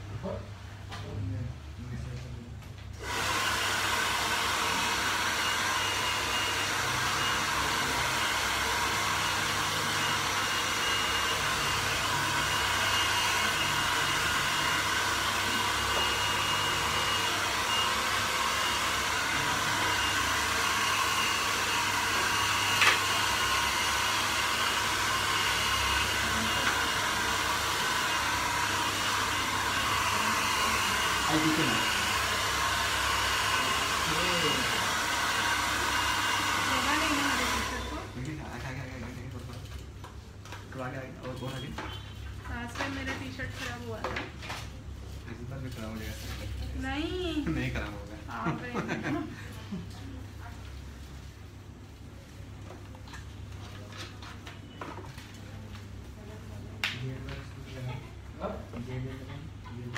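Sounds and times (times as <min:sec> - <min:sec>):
hair dryer running: 0:02.9 - 0:38.9, 0:46.8 - 0:49.9.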